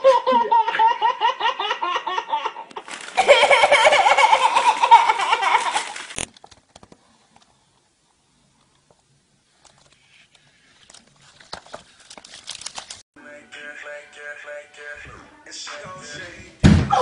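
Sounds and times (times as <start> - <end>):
baby giggling: 0.0 - 6.0
man laughing: 3.2 - 6.0.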